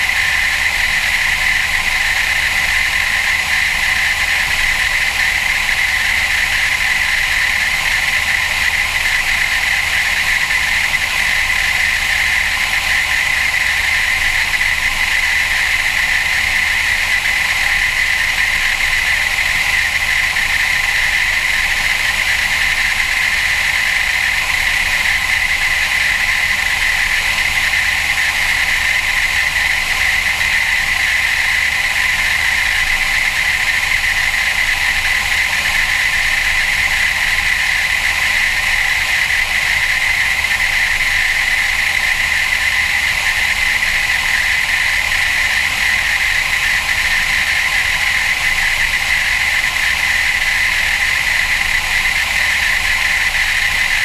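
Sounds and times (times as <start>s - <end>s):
aircraft propeller engine droning: 0.0s - 54.0s.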